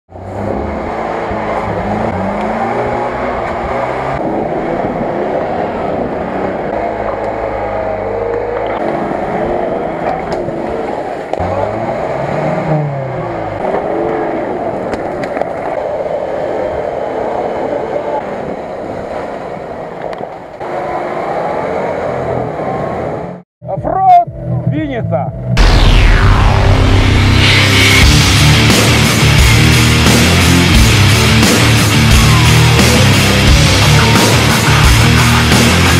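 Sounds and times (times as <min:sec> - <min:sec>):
off-road engines revving: 0:00.1 - 0:19.9, 0:20.6 - 0:23.4, 0:27.0 - 0:35.9.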